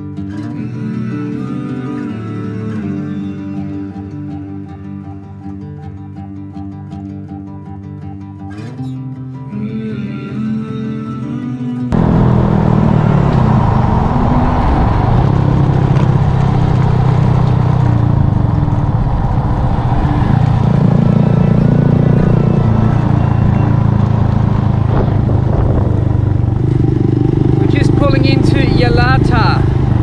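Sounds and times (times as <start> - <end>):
small motorcycle engine running: 12.0 - 30.0
wind rush on microphone: 12.0 - 30.0.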